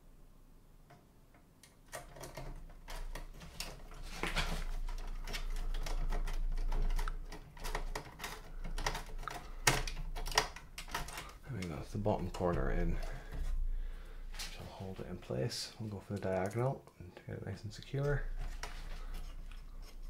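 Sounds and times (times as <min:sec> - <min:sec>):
screwdriver clicking and scraping screw: 0:04.6 - 0:11.4.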